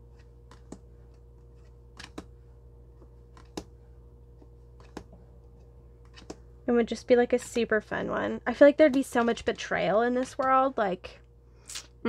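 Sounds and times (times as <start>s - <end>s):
low steady hum: 0.0s - 12.0s
cards clicking and snapping: 0.1s - 2.3s, 3.3s - 3.7s, 4.8s - 5.1s, 6.0s - 6.4s.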